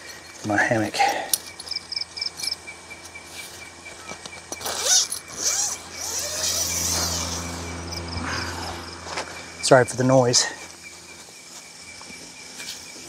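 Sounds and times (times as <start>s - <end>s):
crickets chirping: 0.0s - 13.0s
mosquito net zipper pulled: 4.6s - 7.6s
electric fan humming: 5.1s - 12.1s.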